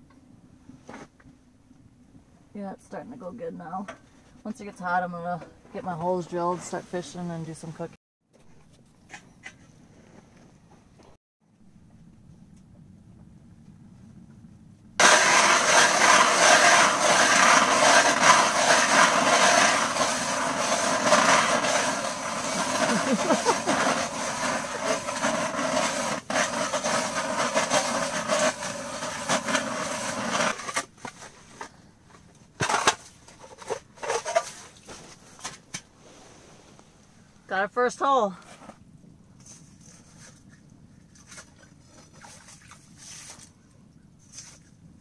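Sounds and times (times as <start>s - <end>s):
ice auger grinding through ice: 15.0s - 30.9s
short scrapes and knocks: 15.0s - 36.8s.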